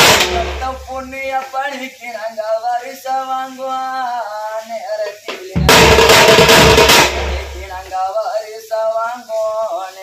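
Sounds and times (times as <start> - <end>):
man singing a lament: 0.3 - 5.9, 7.6 - 10.0.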